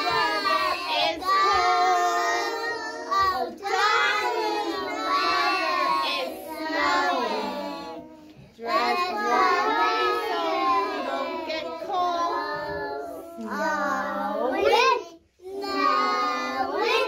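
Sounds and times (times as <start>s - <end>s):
children singing: 0.0s - 17.0s.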